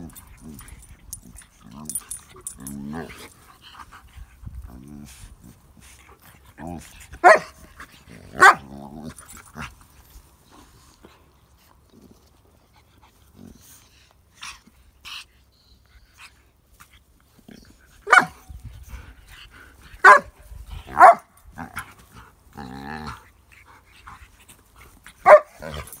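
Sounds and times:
dog growly call: 0:00.0 - 0:03.3
dog barking: 0:07.2 - 0:07.6, 0:08.4 - 0:08.6, 0:18.1 - 0:18.4, 0:20.0 - 0:20.3, 0:20.9 - 0:21.3, 0:25.2 - 0:25.8.

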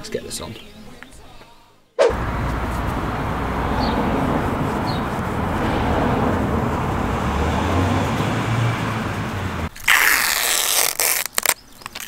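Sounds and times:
distant traffic rumble: 0:02.1 - 0:09.7.

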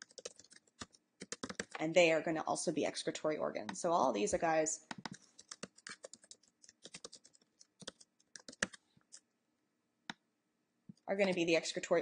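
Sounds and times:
typing on computer keyboard: 0:00.0 - 0:01.8, 0:04.9 - 0:09.2.

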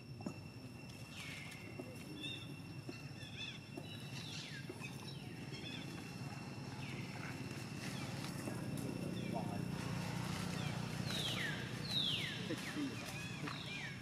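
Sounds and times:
high-pitched insect drone: 0:00.0 - 0:14.0
high chirping animal calls: 0:09.2 - 0:14.0.

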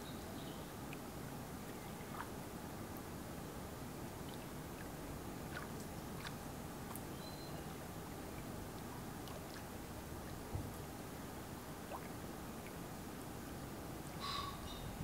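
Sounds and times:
small waves lapping at shore: 0:04.1 - 0:07.1.

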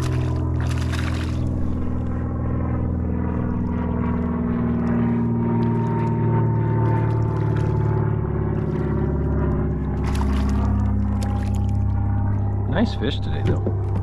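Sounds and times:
boat motor droning: 0:00.0 - 0:14.0
high whine: 0:00.0 - 0:14.0.

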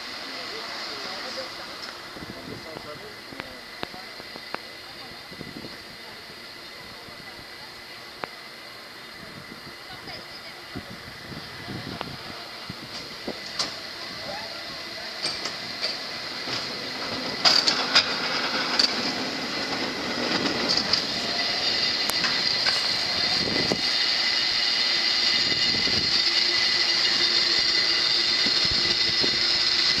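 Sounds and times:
cable car clanks and clicks: 0:01.0 - 0:05.2, 0:11.9 - 0:30.0.

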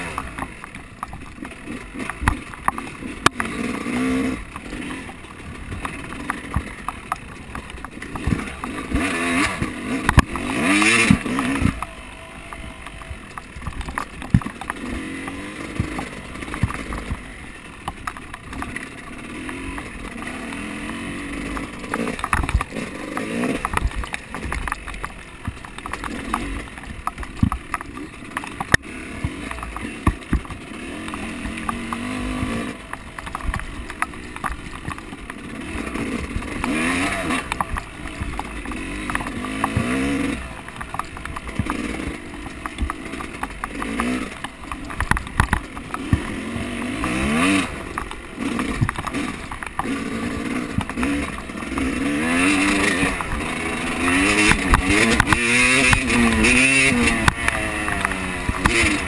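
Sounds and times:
vehicle engine revving: 0:01.2 - 0:59.0
knocks and rattles: 0:12.5 - 0:59.0.

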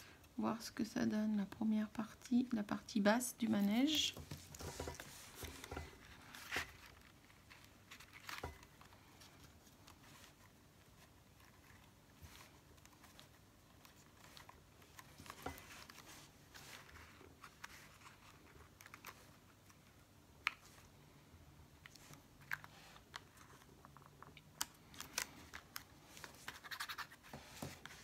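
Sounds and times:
paper rustling and crinkling: 0:03.7 - 0:20.0, 0:21.8 - 0:28.0.

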